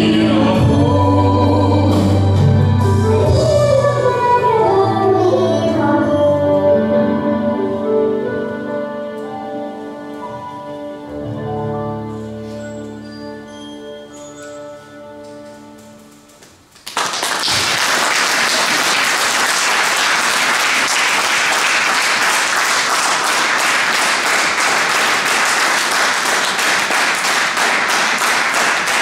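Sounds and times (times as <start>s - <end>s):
audience applause: 16.8s - 29.0s.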